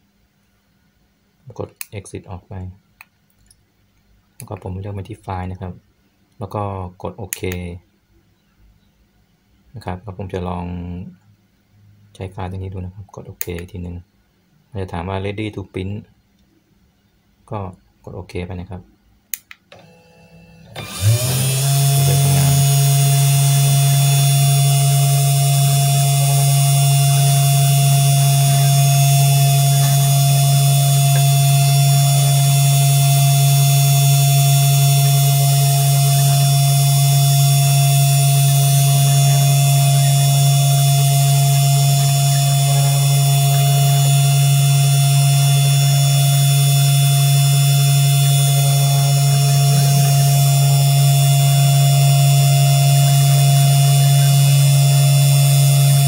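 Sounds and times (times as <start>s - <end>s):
spindle motor humming: 19.8s - 56.0s.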